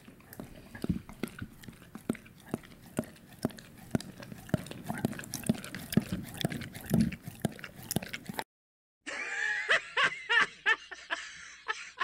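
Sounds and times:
wet licking and slurping: 0.0 - 8.4
man laughing: 9.1 - 12.0.

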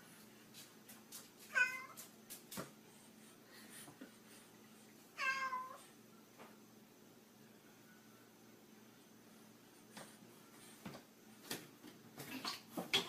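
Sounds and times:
cat meowing: 1.5 - 2.0, 5.2 - 5.8.

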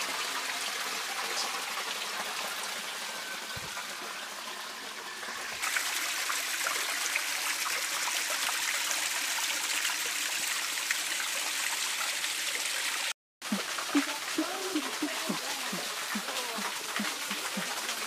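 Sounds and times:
small waterfall splashing on rock: 5.6 - 18.0.

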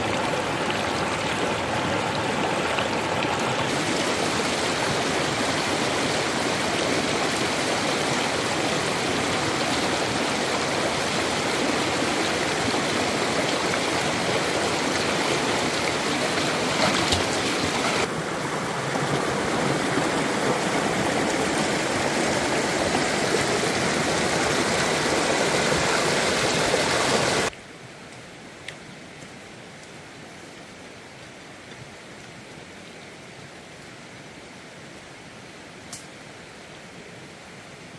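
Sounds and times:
stream rushing over rocks: 0.0 - 27.5.

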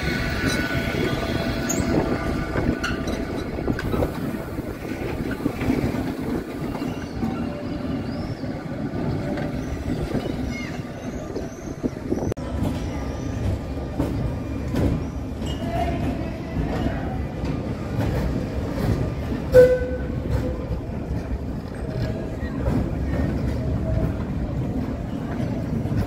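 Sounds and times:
tram wheels rumbling on rails: 0.0 - 26.0.

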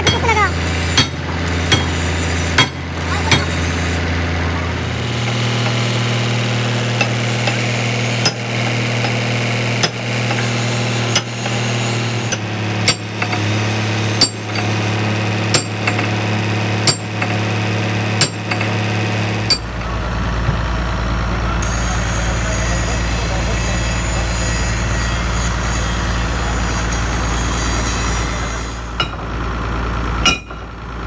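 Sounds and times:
hammer striking steel: 0.0 - 3.8, 7.0 - 11.7, 12.3 - 14.9, 15.5 - 16.2, 16.8 - 17.4, 18.2 - 18.8, 19.5 - 19.9, 28.8 - 29.3, 30.2 - 30.7
engine running: 0.0 - 31.0.

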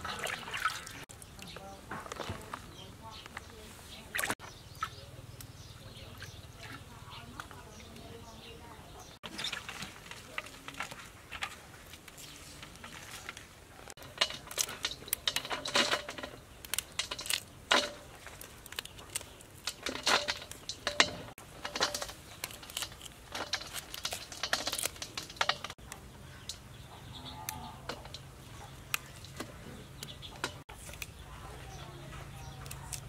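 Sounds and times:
pieces dropping into steel basin: 14.0 - 25.8
vegetable stems snapping: 16.6 - 21.2, 21.9 - 26.0, 32.6 - 33.0.

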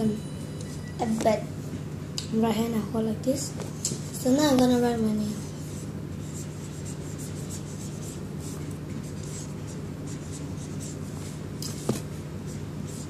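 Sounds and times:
steady low hum: 0.0 - 13.0
marker scratching on paper: 5.4 - 13.0.

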